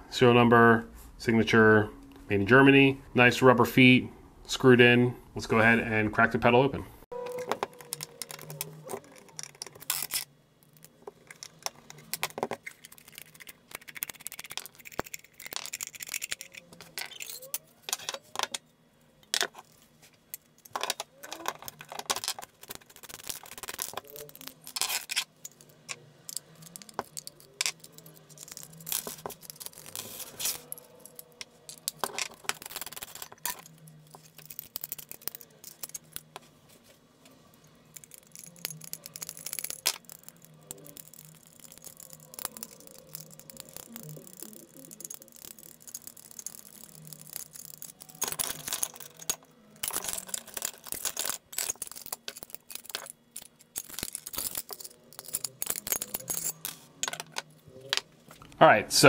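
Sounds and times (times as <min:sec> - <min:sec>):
clicks and scrapes: 0:07.2 - 0:58.1
small metallic rattles: 0:37.6 - 0:57.5.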